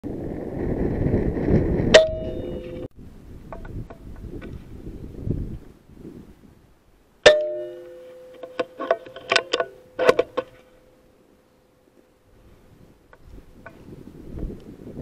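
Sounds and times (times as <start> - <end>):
metal feeder ringing: 2.0 - 2.9, 7.2 - 10.6
sharp metallic clicks and knocks: 7.2 - 10.7.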